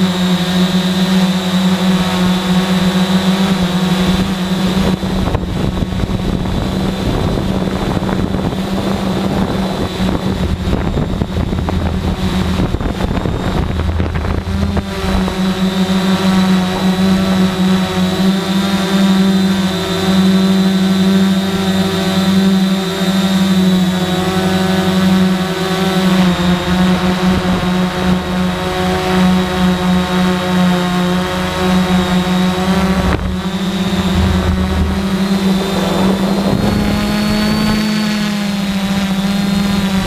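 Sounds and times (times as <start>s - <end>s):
drone propellers buzzing: 0.0s - 40.0s
wind noise on microphone: 1.2s - 18.2s, 31.6s - 40.0s.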